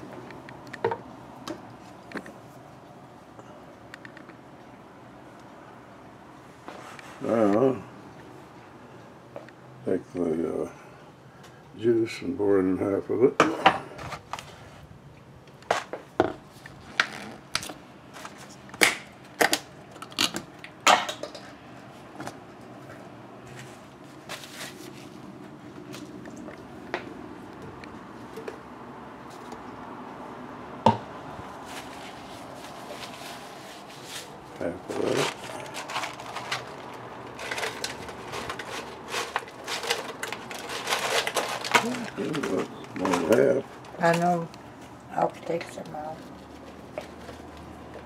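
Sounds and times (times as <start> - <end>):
cardboard carton rustling: 23.6 - 26.2, 31.5 - 43.6
plastic cup and packaging clicking: 35.9 - 44.2.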